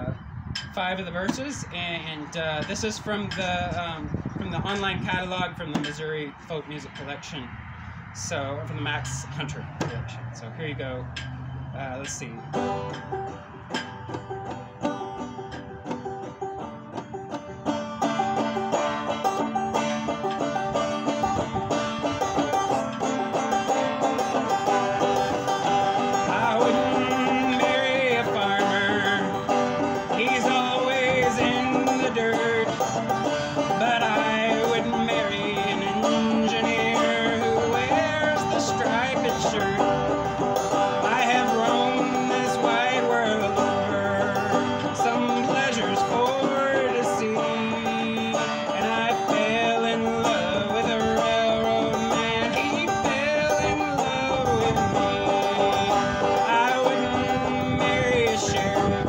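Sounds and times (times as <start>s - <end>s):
banjo playing: 0.8s - 6.2s, 11.0s - 59.0s
man singing: 26.0s - 40.1s, 40.9s - 59.0s.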